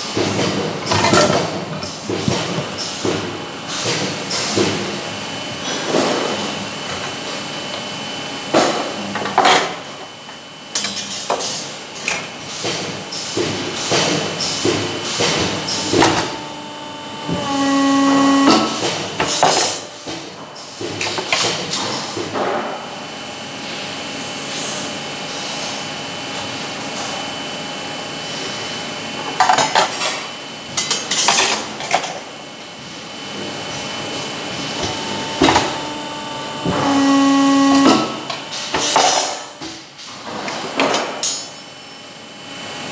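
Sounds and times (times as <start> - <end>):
hydraulic press whine: 12.6 - 21.2, 30.7 - 41.5
machine hum: 13.0 - 20.5, 32.5 - 40.0.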